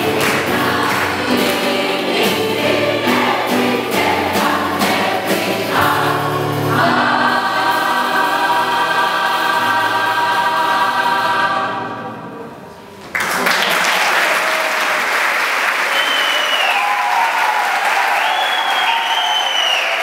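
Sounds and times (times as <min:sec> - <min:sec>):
audience applause: 0:00.0 - 0:02.0, 0:13.1 - 0:20.0
choir holding a chord: 0:00.0 - 0:12.9
high whistles: 0:15.8 - 0:17.4, 0:18.0 - 0:20.0.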